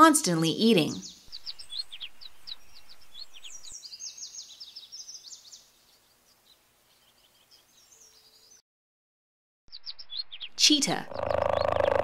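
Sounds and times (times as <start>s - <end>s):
birds chirping: 0.6s - 8.6s, 9.7s - 12.0s.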